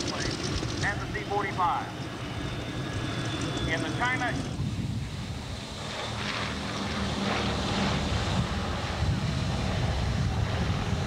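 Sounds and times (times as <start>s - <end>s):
aircraft radial engines running: 0.0s - 11.0s
wind noise on microphone: 4.3s - 5.7s, 7.5s - 11.0s.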